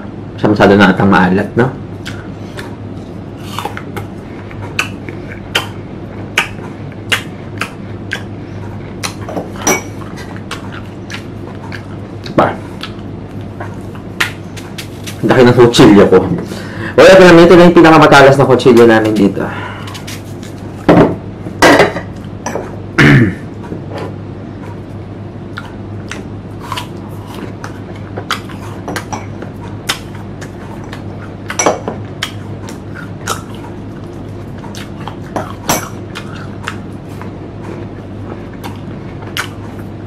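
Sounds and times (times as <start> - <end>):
steady low hum: 0.0 - 40.0
crunchy chewing: 2.0 - 15.3, 24.6 - 40.0.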